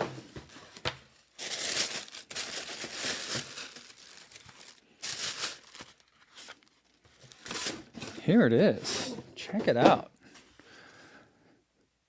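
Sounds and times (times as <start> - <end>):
tissue paper rustling and crinkling: 0.5 - 8.1.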